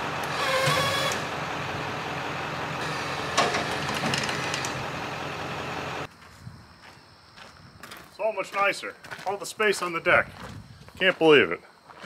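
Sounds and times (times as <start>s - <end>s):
truck engine idling: 0.0s - 6.1s
rattling clanks: 3.3s - 4.8s.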